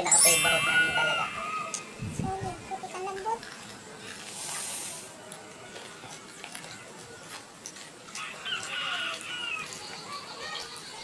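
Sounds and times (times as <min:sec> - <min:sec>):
chicken calling: 0:00.1 - 0:02.0.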